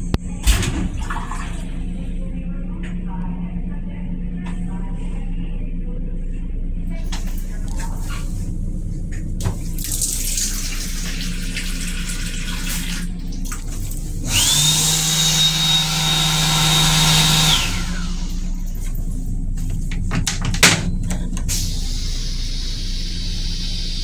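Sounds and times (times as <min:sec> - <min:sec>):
toilet flushing: 0:00.0 - 0:02.0, 0:09.4 - 0:19.0, 0:20.2 - 0:24.0
hand dryer blowing: 0:14.2 - 0:18.7.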